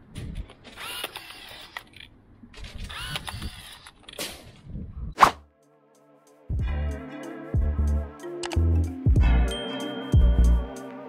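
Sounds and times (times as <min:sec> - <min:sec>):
rebar tying gun motor whir: 0:00.6 - 0:04.2
sharp snap: 0:05.2 - 0:05.4.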